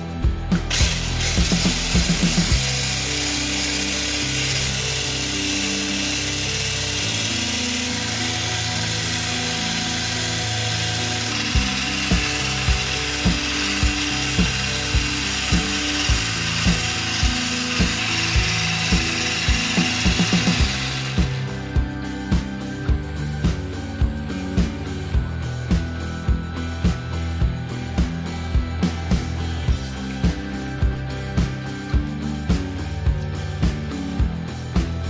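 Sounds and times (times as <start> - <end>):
electric whisk running: 0.0 - 26.0
background music with low thumps: 0.0 - 35.0.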